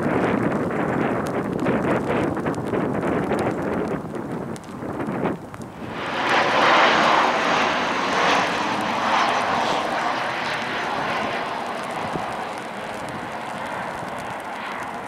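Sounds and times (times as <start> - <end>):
jet engines rushing: 5.7 - 15.0.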